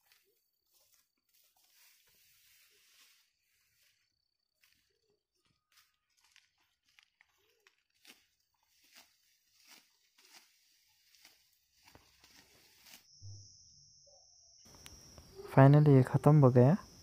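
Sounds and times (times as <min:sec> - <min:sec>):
sickle cutting dry rice stalks: 0:00.0 - 0:05.1, 0:05.7 - 0:13.3.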